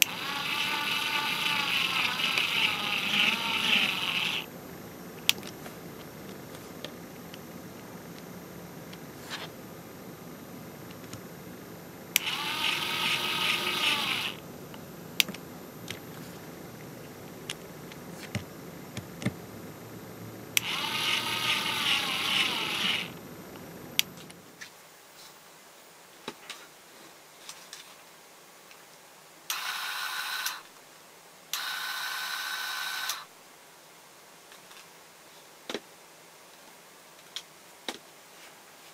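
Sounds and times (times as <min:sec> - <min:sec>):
small screwdriver motor whirring: 0:00.0 - 0:04.5, 0:12.2 - 0:14.4, 0:20.6 - 0:23.2, 0:29.5 - 0:30.7, 0:31.6 - 0:33.3.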